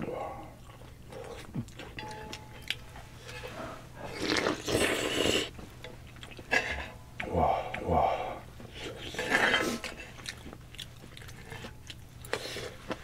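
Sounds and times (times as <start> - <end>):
person slurping noodles: 4.0 - 5.5
chewing and utensil clicks: 9.8 - 13.0.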